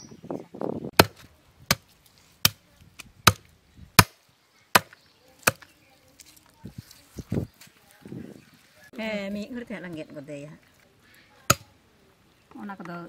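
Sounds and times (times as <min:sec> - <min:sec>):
cleaver chopping chicken on wood: 0:01.0 - 0:01.8, 0:04.8 - 0:05.6.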